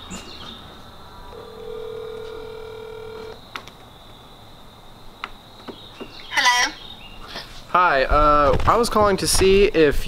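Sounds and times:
phone ringback tone: 1.3s - 3.4s.

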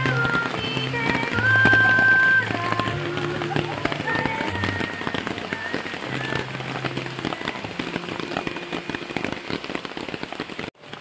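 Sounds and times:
heavy rain on ground and tents: 0.0s - 11.0s.

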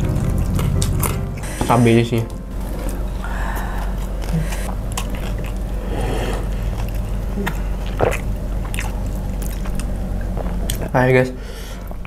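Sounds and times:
steady low hum: 0.0s - 12.0s
wet chewing and mouth smacks: 3.8s - 10.9s.

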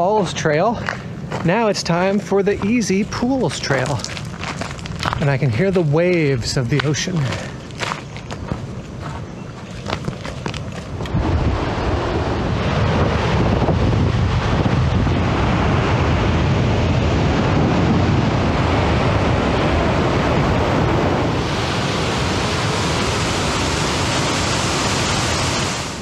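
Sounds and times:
wind buffeting microphone: 0.0s - 26.0s
ocean surf breaking: 11.2s - 26.0s.

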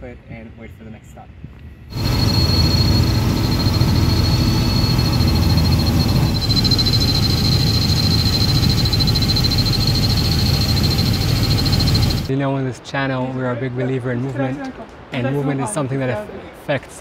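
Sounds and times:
helicopter engine and rotor drone: 1.9s - 12.3s
high turbine whine: 1.9s - 12.3s.

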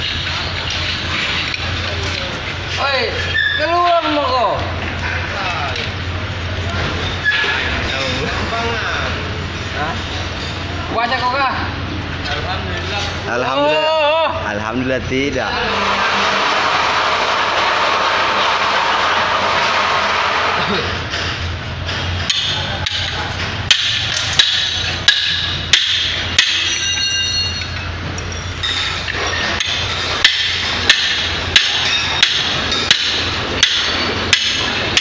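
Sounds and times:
hammer striking steel: 20.8s - 35.0s.

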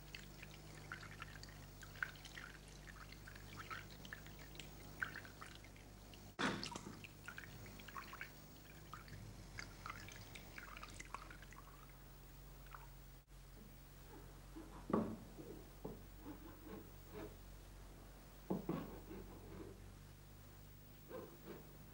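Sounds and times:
water drips and splashes: 0.0s - 12.0s, 12.6s - 12.9s.

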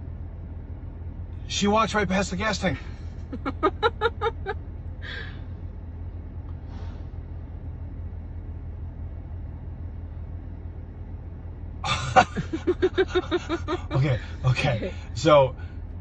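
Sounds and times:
low vehicle rumble: 0.0s - 16.0s
voice: 1.5s - 2.8s, 3.4s - 4.5s, 11.9s - 15.6s
short hisses: 6.6s - 7.2s.

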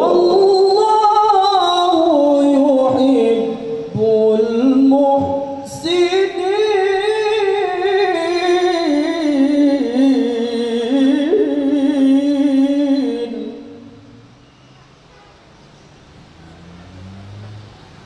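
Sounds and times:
man reciting melodically: 0.0s - 14.0s.

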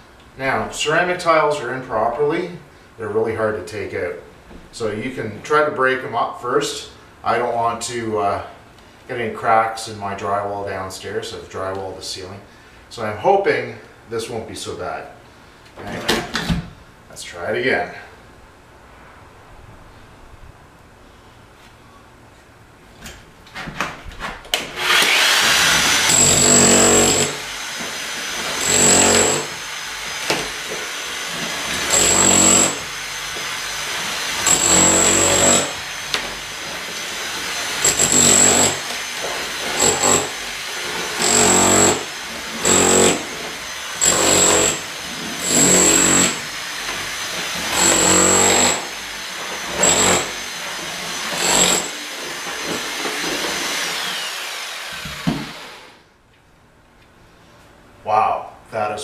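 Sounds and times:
demolition hammer chiselling tiles: 24.8s - 55.8s.

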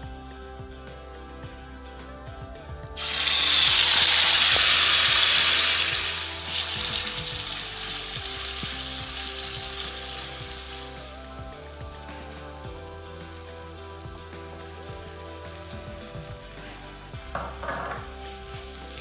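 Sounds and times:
chicken sizzling in hot oil: 3.0s - 19.0s.

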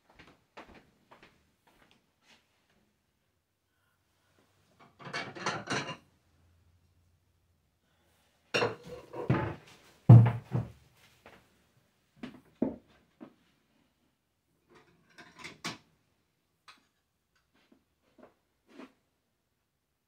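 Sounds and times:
dishes clinking and rattling: 4.8s - 6.1s, 8.6s - 9.6s, 14.8s - 15.8s.

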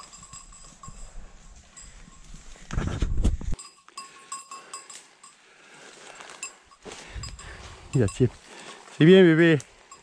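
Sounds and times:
small dog bell tinkling: 0.0s - 2.4s, 3.6s - 5.4s
brushing through brambles and twigs: 0.0s - 3.6s, 4.2s - 10.0s
footsteps crunching through dry leaves: 5.7s - 9.1s.

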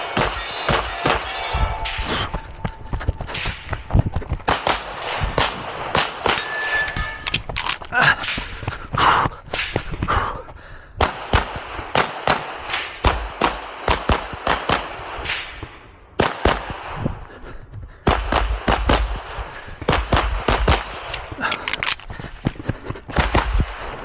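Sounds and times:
rapid gunfire: 11.0s - 15.3s, 18.0s - 21.1s.

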